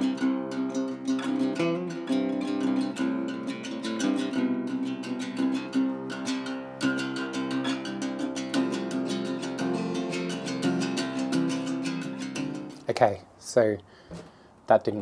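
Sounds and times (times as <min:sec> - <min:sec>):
guitar plucking and strumming: 0:00.0 - 0:12.9.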